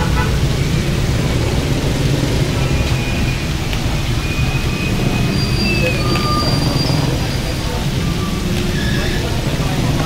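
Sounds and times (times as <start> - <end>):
roadside traffic rumble: 0.0 - 10.0.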